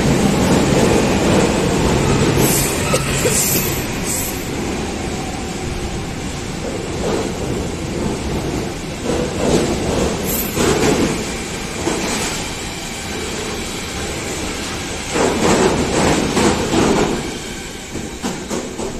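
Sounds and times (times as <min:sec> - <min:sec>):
train clattering: 0:00.0 - 0:04.9, 0:06.2 - 0:18.9
freight train wheels rumbling: 0:00.0 - 0:18.9.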